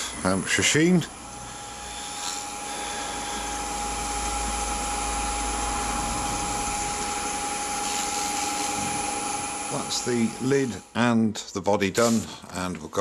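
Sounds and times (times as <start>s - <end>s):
wood lathe running: 0.0s - 11.2s
paper towel rubbing spinning wood: 1.8s - 10.8s.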